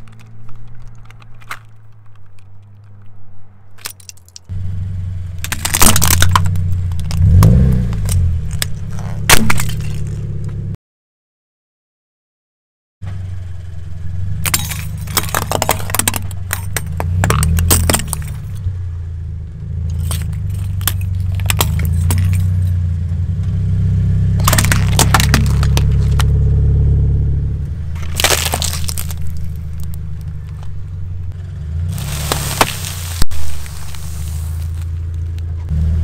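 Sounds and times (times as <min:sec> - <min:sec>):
tyre crushing small objects: 0:00.0 - 0:03.2, 0:05.3 - 0:10.6, 0:14.4 - 0:18.7, 0:19.8 - 0:22.9, 0:24.2 - 0:26.4, 0:27.8 - 0:35.7
car engine running: 0:04.5 - 0:10.8, 0:13.0 - 0:36.0.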